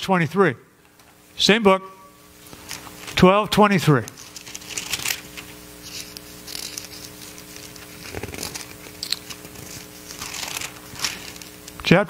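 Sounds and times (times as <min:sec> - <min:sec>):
faint hum: 0:00.0 - 0:12.0
paper pages turning: 0:04.0 - 0:11.8
paper rustling: 0:04.1 - 0:11.8.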